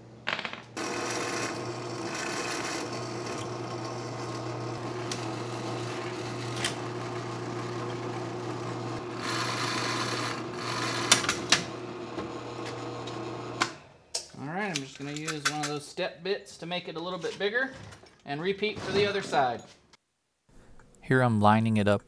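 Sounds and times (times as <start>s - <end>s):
drill bit cutting metal: 0.8s - 13.6s
drill press motor hum: 0.8s - 13.8s.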